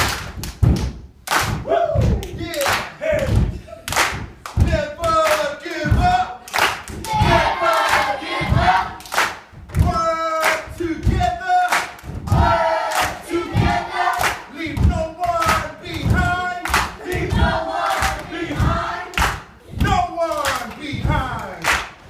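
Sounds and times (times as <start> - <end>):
low thumping beat: 0.0 - 22.0
children chanting in unison: 7.0 - 9.2, 12.3 - 14.6, 16.7 - 19.3.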